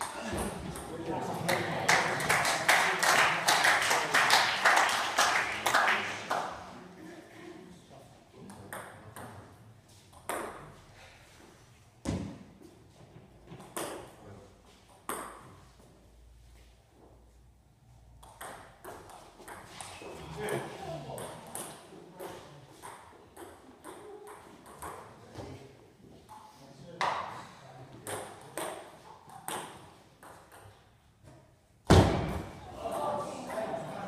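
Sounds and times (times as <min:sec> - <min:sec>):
spectators clapping: 0:01.3 - 0:06.7
voices: 0:32.6 - 0:34.0.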